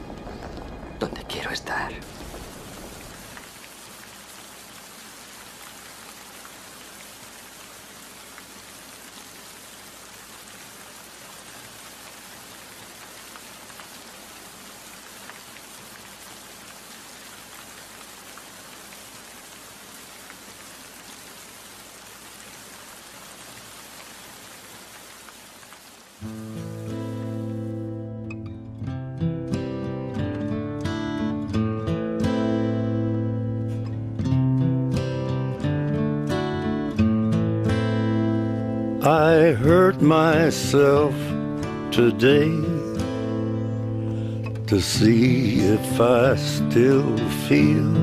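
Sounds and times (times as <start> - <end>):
rain falling: 0.0 - 48.0.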